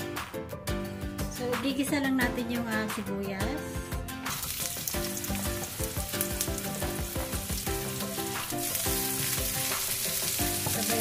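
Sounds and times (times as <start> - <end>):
background music: 0.0 - 11.0
onion sizzling in oil: 4.2 - 11.0.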